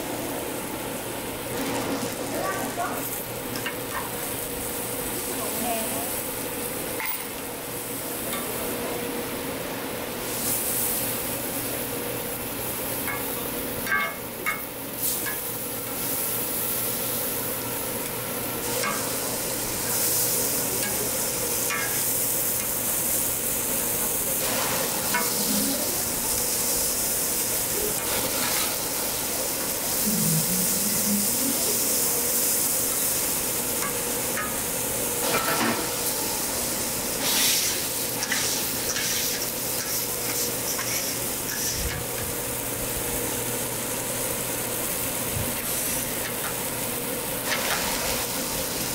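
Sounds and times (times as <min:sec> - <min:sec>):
food sizzling on a griddle: 0:00.0 - 0:48.9
metal spatula scraping griddle: 0:24.4 - 0:25.8, 0:37.2 - 0:41.9.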